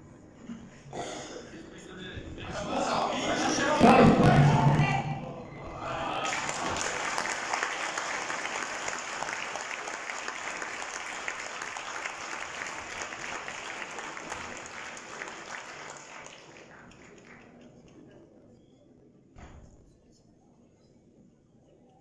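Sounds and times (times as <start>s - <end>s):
crowd applauding: 5.8s - 18.1s.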